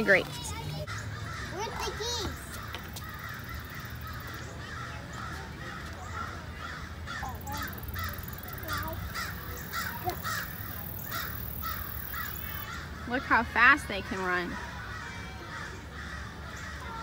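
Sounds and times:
birds giving harsh calls: 0.0s - 17.0s.

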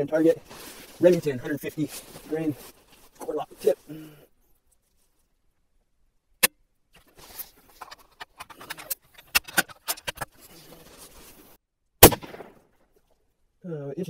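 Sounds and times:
rustling: 0.0s - 5.7s, 6.9s - 11.6s
rifle shot with echo: 12.0s - 12.6s.

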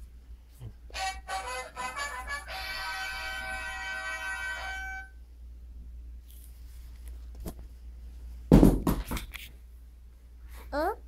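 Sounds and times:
music: 0.9s - 5.2s
loud knocks and bumps: 8.5s - 9.3s.

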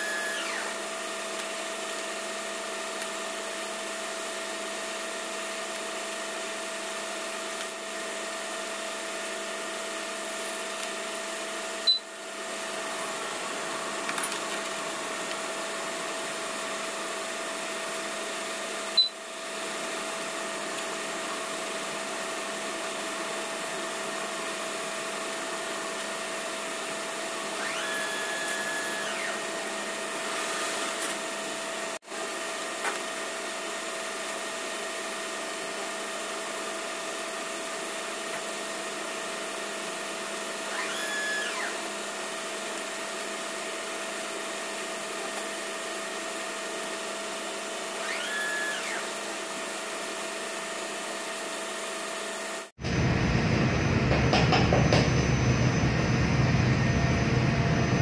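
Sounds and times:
machine whirring: 0.0s - 0.9s, 27.5s - 30.8s, 47.9s - 49.4s
deep rumble: 52.8s - 54.4s.

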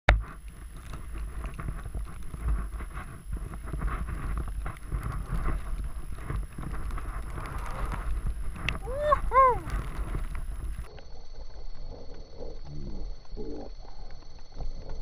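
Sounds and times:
wind noise on microphone: 0.1s - 10.9s
skis swishing through powder snow: 0.6s - 10.8s.

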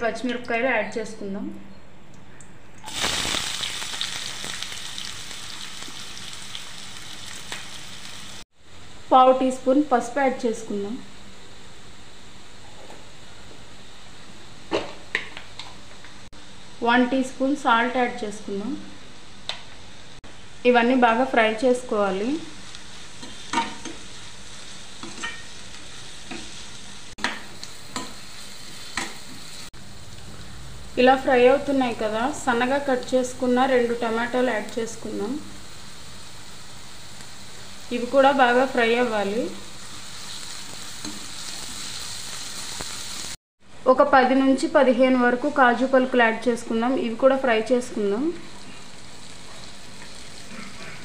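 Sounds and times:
oil crackling: 2.8s - 7.7s
vegetables sizzling in hot oil: 2.8s - 8.5s, 20.3s - 43.4s, 44.8s - 51.0s
spatula scraping and stirring: 49.4s - 51.0s.

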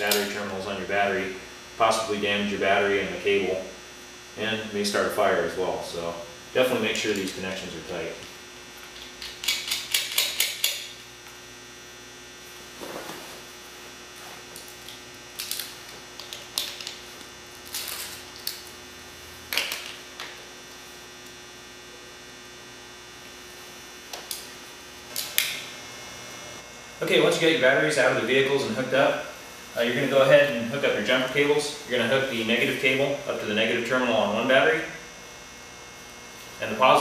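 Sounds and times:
steady electrical hum: 0.0s - 37.0s
wrench metal clicks: 9.0s - 10.9s.

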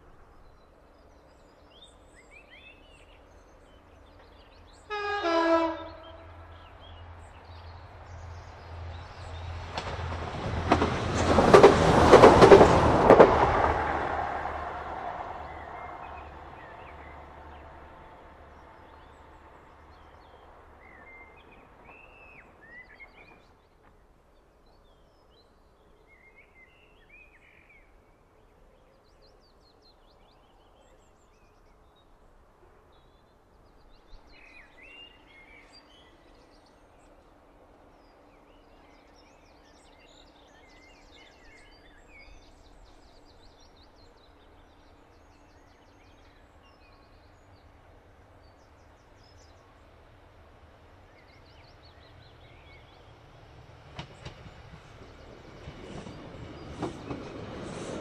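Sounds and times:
diesel train rumbling: 3.0s - 23.8s, 37.0s - 58.0s.

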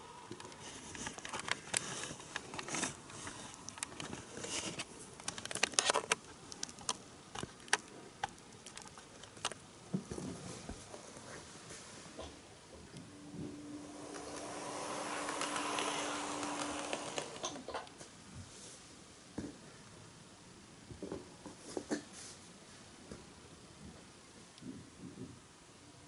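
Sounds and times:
faint running hiss: 0.0s - 26.0s
model train wheels clicking: 13.6s - 17.9s.

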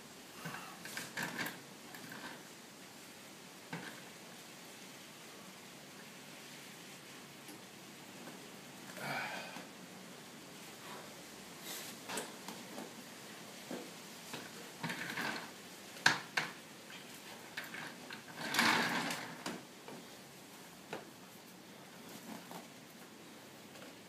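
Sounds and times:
straps creaking and rubbing: 0.0s - 2.6s, 3.7s - 4.4s, 10.6s - 24.0s
rough rustle of straps: 10.5s - 16.0s, 20.1s - 23.2s.

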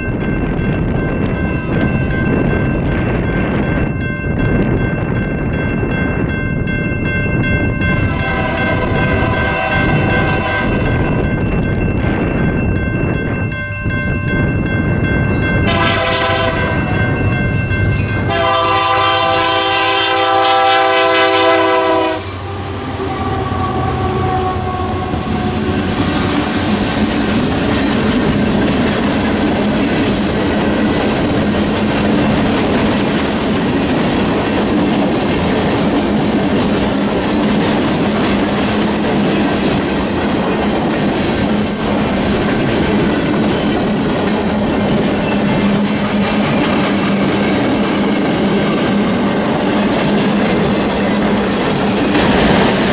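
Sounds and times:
freight train wheels rumbling: 0.0s - 52.9s
locomotive horn blasts: 8.1s - 10.9s, 15.7s - 16.9s, 18.2s - 25.7s.

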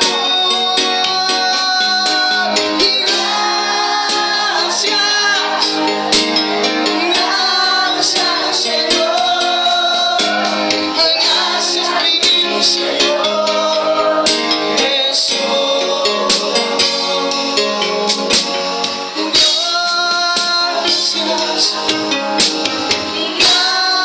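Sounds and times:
man singing into a microphone: 0.0s - 6.1s, 6.7s - 22.4s, 23.0s - 24.0s
electronic keyboard: 0.0s - 24.0s.

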